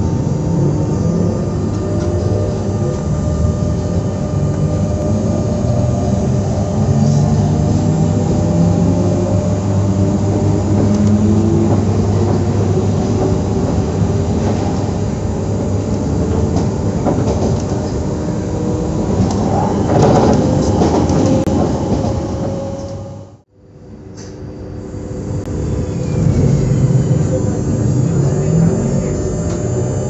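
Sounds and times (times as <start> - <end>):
electric train traction hum: 0.0 - 30.0
train wheels clicking on rails: 7.0 - 23.0.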